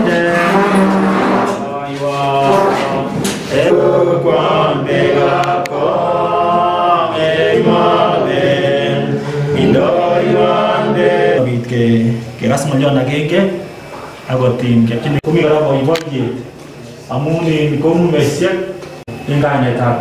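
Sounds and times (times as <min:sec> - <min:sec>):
group singing a hymn: 0:00.0 - 0:12.3.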